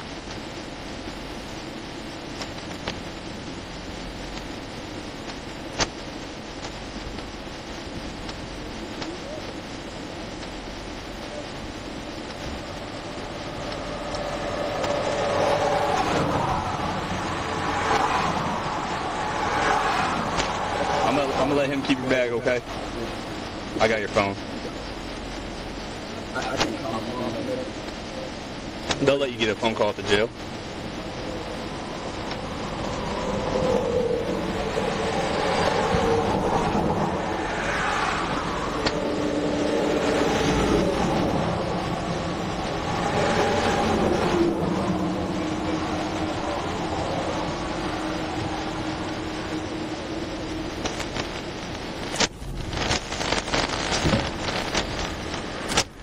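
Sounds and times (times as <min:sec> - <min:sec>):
road traffic passing: 0:10.1 - 0:52.2.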